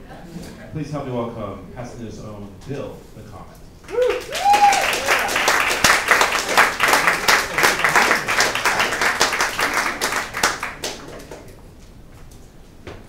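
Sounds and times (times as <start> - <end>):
audience applauding: 3.8 - 11.6.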